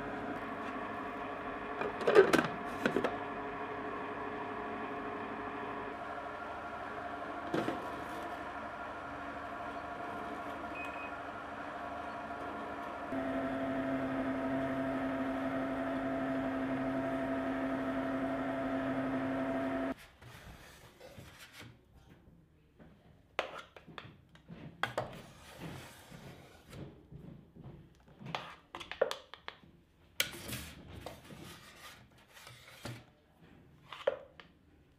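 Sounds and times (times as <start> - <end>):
ice cream maker humming: 0.0 - 20.0.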